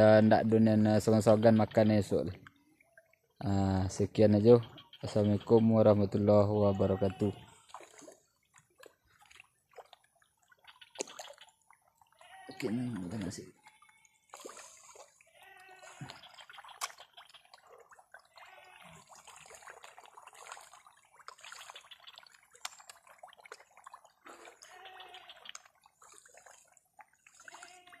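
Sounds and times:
fish splashing at water surface: 7.5s - 28.0s.

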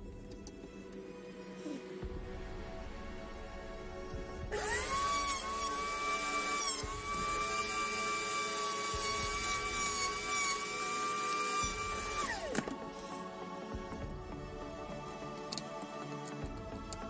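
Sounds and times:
rotary tool high whine: 4.5s - 12.8s.

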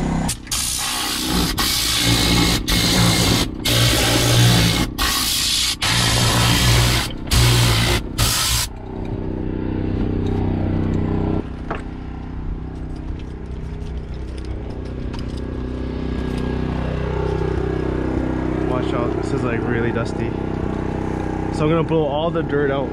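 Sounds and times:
machinery engine hum: 0.0s - 5.1s, 5.8s - 22.9s
compressed air hissing: 0.3s - 8.7s.

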